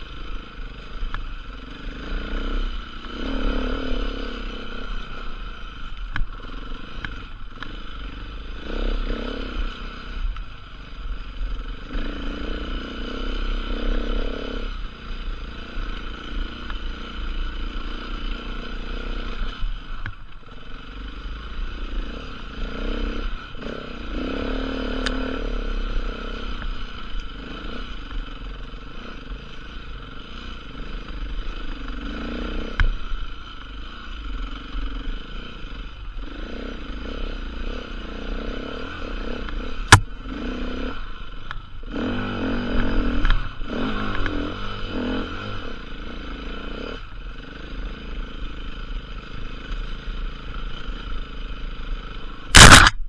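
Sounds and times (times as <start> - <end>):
motorcycle engine revving: 0.0 - 53.0
sharp knock: 52.5 - 53.0.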